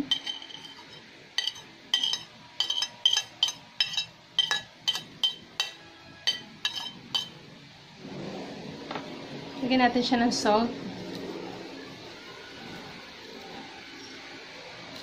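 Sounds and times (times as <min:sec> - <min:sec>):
metal spoon tapping ceramic plate: 0:00.0 - 0:07.4.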